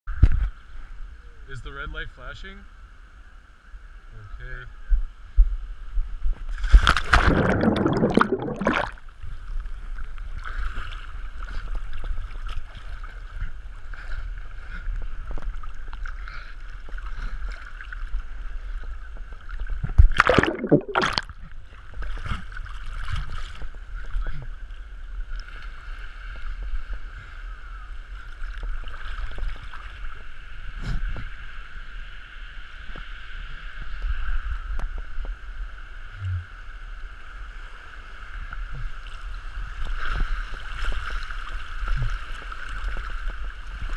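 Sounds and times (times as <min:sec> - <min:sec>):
loud splashing: 0:06.8 - 0:09.0, 0:20.1 - 0:21.3
river water rushing and gurgling: 0:07.1 - 0:09.0, 0:20.2 - 0:21.3.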